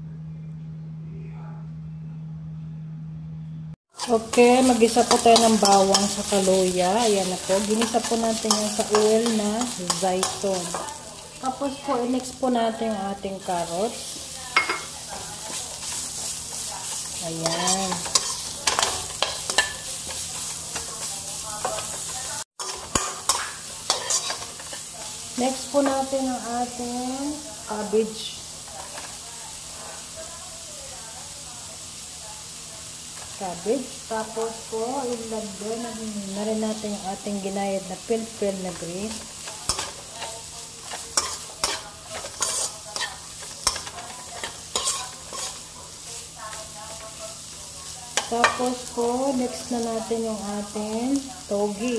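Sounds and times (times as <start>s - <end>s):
metal spoon scraping pan: 3.9s - 11.0s, 13.9s - 26.1s, 38.3s - 46.1s
vegetables sizzling in oil: 3.9s - 51.9s
metal spatula clacking on pan: 17.5s - 24.8s.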